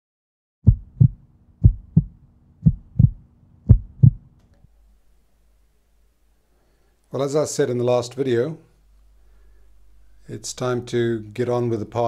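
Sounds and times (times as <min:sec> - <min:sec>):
heartbeat double thumps: 0:00.6 - 0:04.3
steady low hum: 0:00.7 - 0:07.1, 0:08.7 - 0:12.0.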